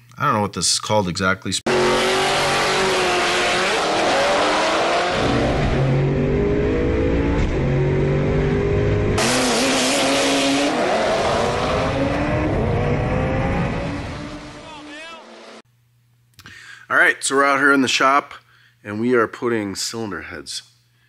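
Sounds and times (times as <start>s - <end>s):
race car engine accelerating: 1.7s - 15.6s.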